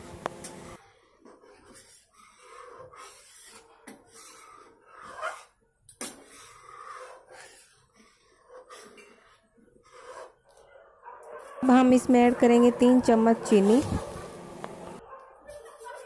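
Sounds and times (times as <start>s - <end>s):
metal spatula scraping a pan: 1.2s - 10.4s.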